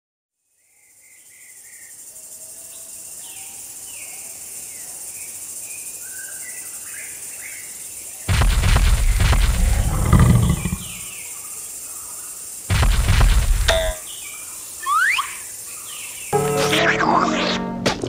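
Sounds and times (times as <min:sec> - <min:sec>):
insects chorus: 0:00.5 - 0:17.0
birds chirping: 0:08.2 - 0:16.4.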